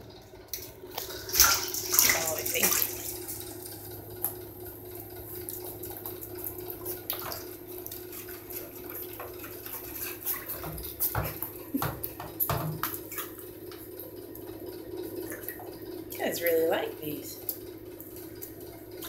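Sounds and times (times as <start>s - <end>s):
water splashing and dripping: 0.0s - 19.0s.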